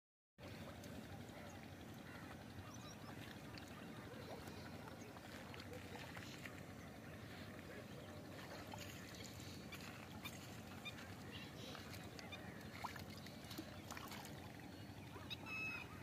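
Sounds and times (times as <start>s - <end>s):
low steady hum: 0.4s - 16.0s
faint short bird calls: 14.7s - 16.0s.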